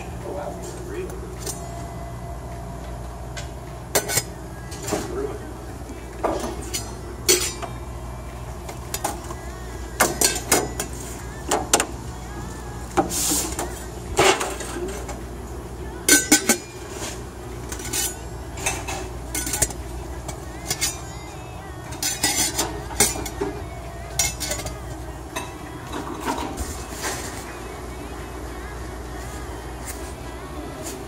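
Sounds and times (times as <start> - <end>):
low hum: 0.0 - 30.8
metal lids clinking: 3.9 - 5.0, 6.3 - 7.7, 16.1 - 16.7, 17.6 - 21.1, 21.9 - 26.6.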